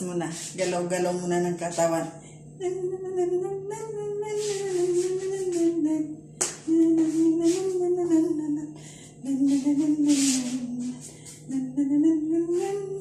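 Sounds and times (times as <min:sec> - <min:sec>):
person humming a tune: 0:02.6 - 0:13.0
rhythmic hissing beat: 0:06.8 - 0:08.5, 0:09.2 - 0:13.0.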